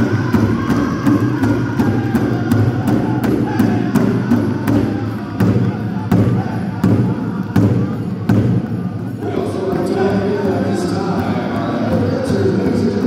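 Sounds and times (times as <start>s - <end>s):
large drum beating: 0.0s - 13.0s
singers chanting: 0.0s - 13.0s.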